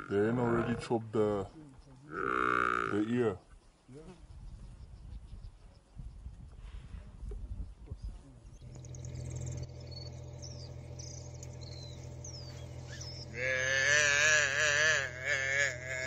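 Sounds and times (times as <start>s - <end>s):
calf bawling: 0.0s - 1.0s, 2.1s - 3.1s, 8.7s - 16.0s
birds chirping: 7.6s - 16.0s.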